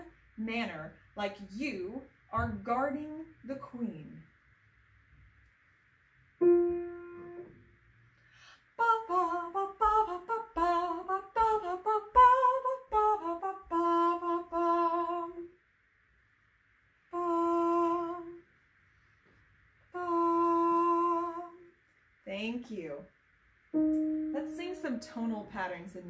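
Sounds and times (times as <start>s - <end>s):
piano note ringing: 6.4s - 7.6s, 23.8s - 25.8s
woman singing marching tune: 8.8s - 15.4s.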